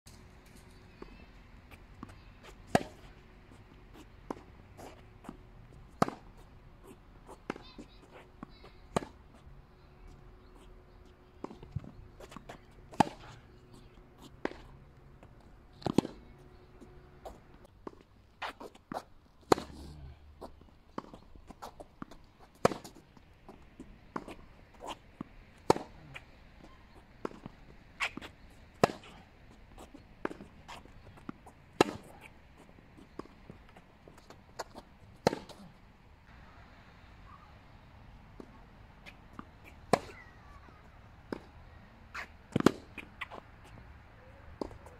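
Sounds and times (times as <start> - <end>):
tennis ball bouncing: 0.9 - 9.4, 10.9 - 19.8, 20.4 - 35.8, 38.4 - 41.5, 42.1 - 44.9
tennis racket hitting ball: 2.7 - 3.0, 27.2 - 29.2, 30.2 - 32.3, 34.6 - 35.6, 42.1 - 43.4.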